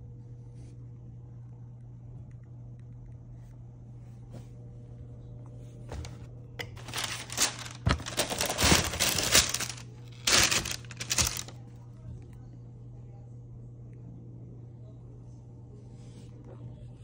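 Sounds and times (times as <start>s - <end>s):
tissue paper crinkling: 6.8s - 11.6s.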